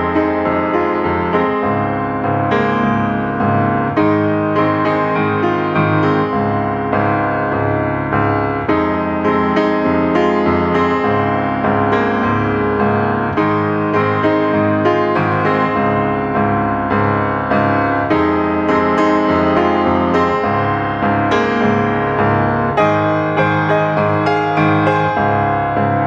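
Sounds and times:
background piano music: 0.0s - 26.0s.

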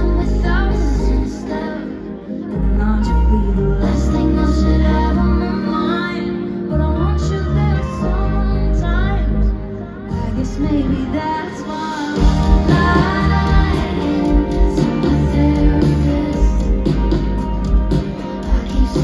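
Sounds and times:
bass and drums: 0.0s - 1.4s, 12.1s - 19.0s
live band with electric guitar: 0.0s - 19.0s
woman singing: 0.0s - 19.0s.

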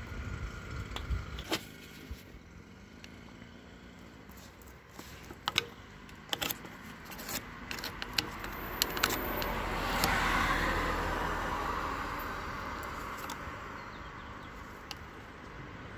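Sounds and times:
screwdriver clicking on metal clamp: 5.2s - 10.2s.

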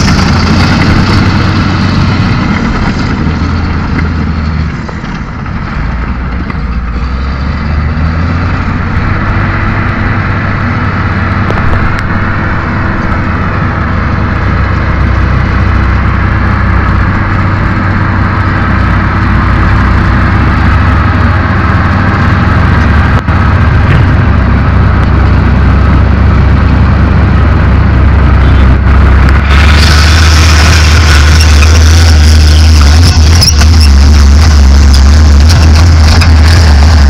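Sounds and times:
bulldozer diesel engine running: 0.0s - 37.0s
dump truck hissing: 24.6s - 37.0s.

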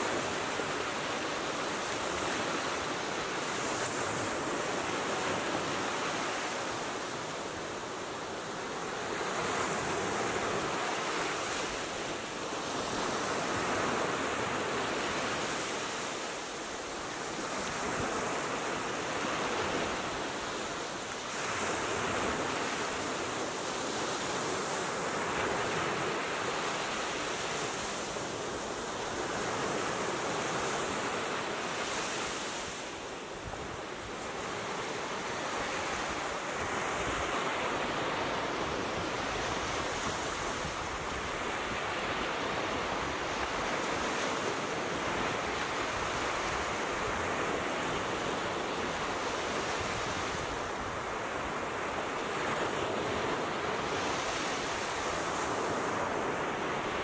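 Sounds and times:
ocean waves washing up a beach: 0.0s - 57.0s.

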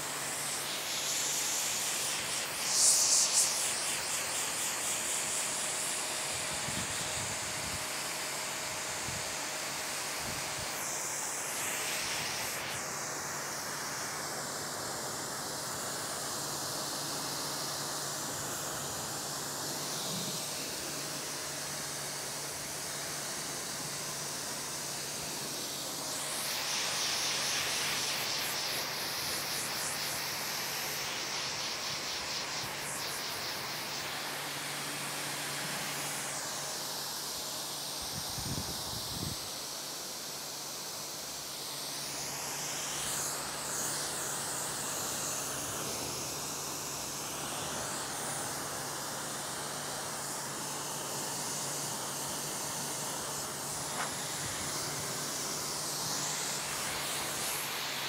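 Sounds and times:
pressure washer spray hissing: 0.0s - 58.0s.

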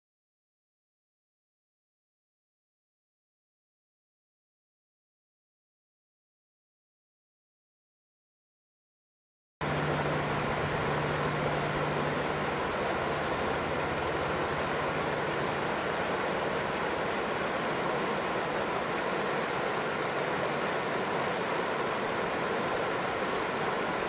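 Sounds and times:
low hum: 9.6s - 24.0s
stream rushing: 9.6s - 24.0s.

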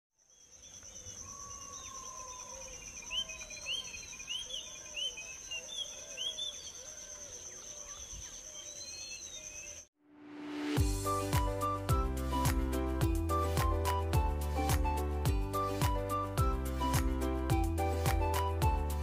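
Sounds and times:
birds chirping and whistling: 1.1s - 9.9s.

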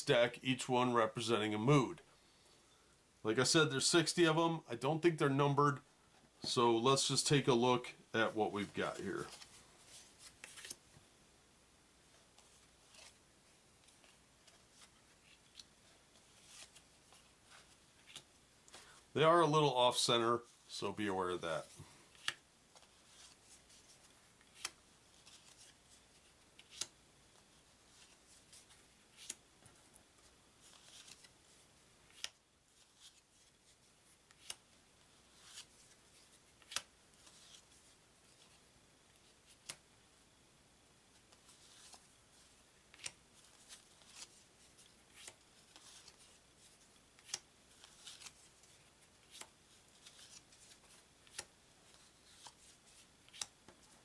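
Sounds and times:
playing cards snapping and sliding: 9.2s - 10.8s, 14.8s - 18.8s, 22.1s - 25.8s, 26.6s - 27.0s, 27.9s - 29.4s, 32.1s - 33.2s, 34.3s - 34.6s, 35.3s - 37.6s, 39.5s - 39.8s, 42.9s - 44.4s, 47.2s - 53.8s.

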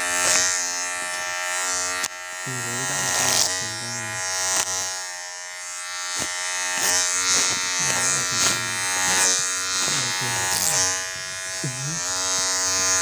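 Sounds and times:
electric hair clippers buzzing: 0.0s - 13.0s.

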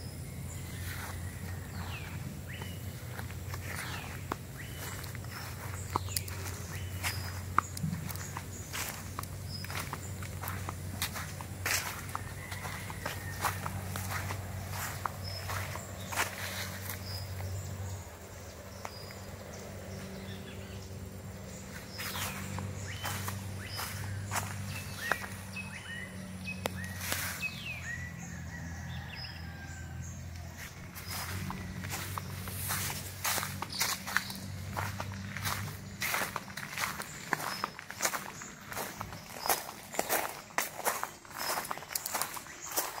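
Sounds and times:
birds whistling: 0.0s - 19.3s, 20.0s - 29.8s, 31.0s - 43.0s
steady low hum: 0.0s - 28.4s
footsteps on ground: 0.5s - 43.0s.

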